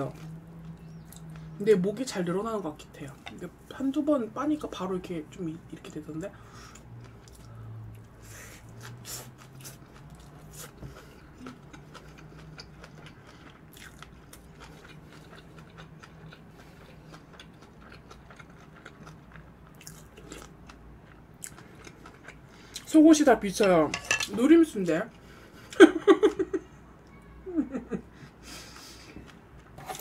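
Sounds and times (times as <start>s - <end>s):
chewing crunchy food: 8.8s - 22.9s.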